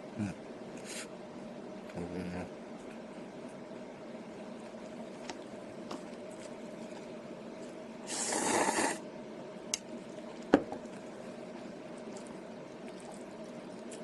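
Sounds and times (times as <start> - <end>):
faint steady hum: 0.0 - 14.0
noodles slurping: 8.1 - 9.0, 11.8 - 14.0.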